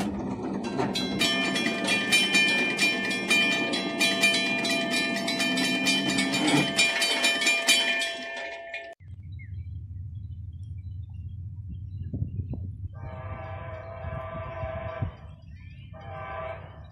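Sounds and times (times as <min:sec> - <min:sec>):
railroad crossing bell ringing: 0:00.1 - 0:09.0
low steady rumble: 0:08.0 - 0:16.8.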